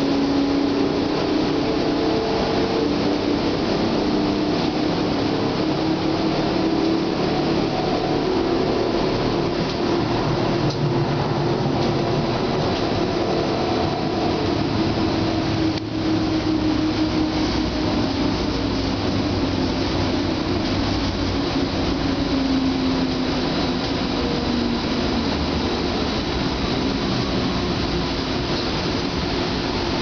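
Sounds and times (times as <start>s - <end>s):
tram wheels rumbling on rails: 0.0s - 30.0s.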